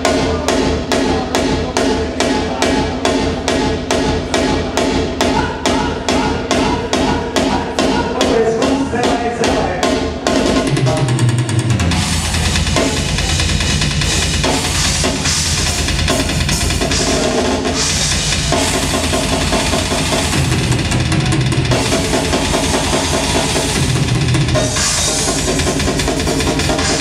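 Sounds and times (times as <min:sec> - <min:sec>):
fast drum kit: 0:00.0 - 0:27.0
live rock band: 0:08.6 - 0:27.0.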